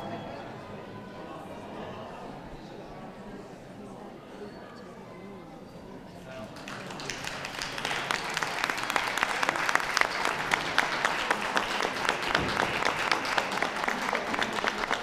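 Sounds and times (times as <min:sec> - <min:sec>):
crowd applauding: 0:06.2 - 0:15.0.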